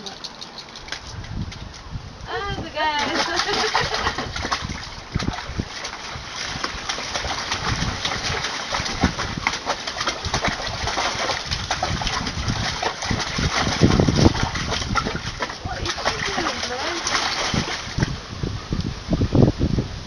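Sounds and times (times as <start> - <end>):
puppy splashing in water: 2.5 - 18.2.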